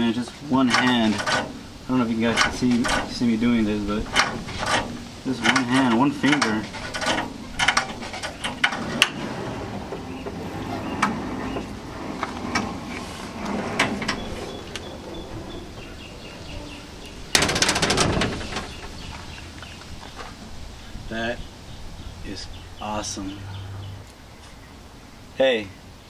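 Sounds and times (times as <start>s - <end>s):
ramp gate springs creaking: 0.0s - 24.6s
gate rattling clatter: 0.6s - 19.2s.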